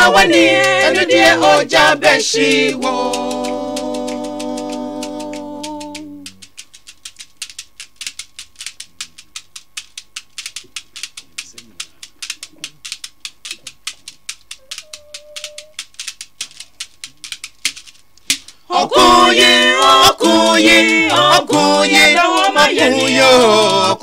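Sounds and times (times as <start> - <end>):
a cappella singing: 0.0 - 6.3, 18.7 - 24.0
beaded gourd shaker rhythm: 0.0 - 24.0.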